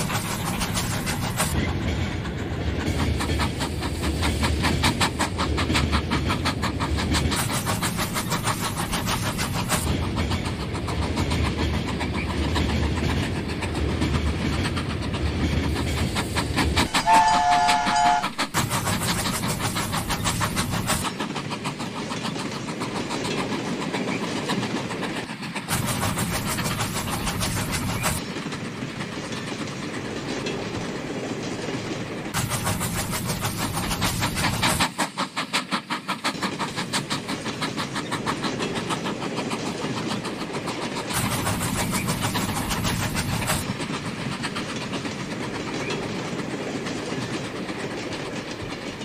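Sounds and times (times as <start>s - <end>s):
train wheels clicking on track: 0.0s - 49.0s
two-tone train whistle: 16.8s - 18.6s.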